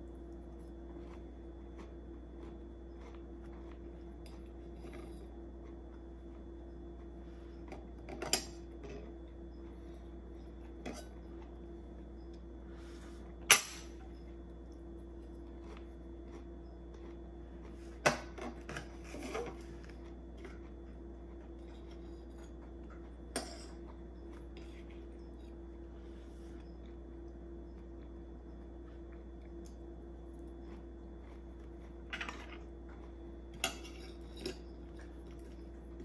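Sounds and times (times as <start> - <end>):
low hum: 0.0 - 36.0
cutlery clinking on a plate: 13.5 - 14.0.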